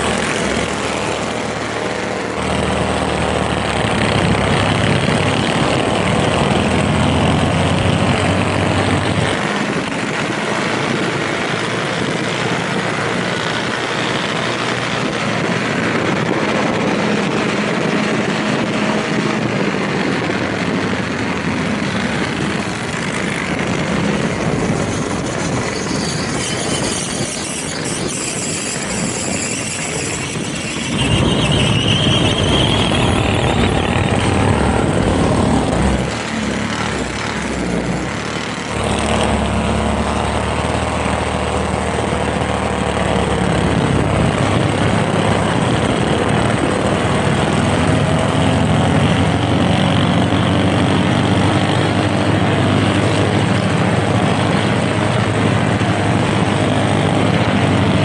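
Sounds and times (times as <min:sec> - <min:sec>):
minibike engines running: 0:17.8 - 0:39.0.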